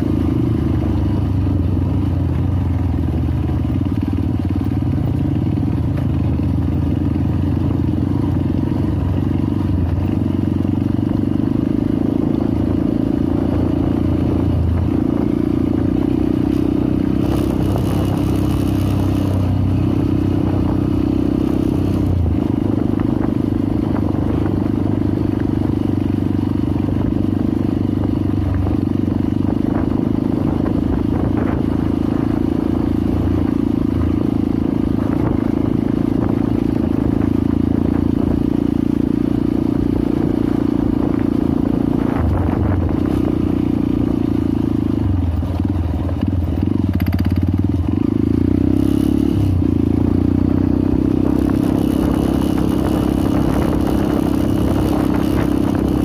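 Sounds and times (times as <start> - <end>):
dirt bike engine running: 0.0 - 56.0
bike rattling: 1.0 - 22.5.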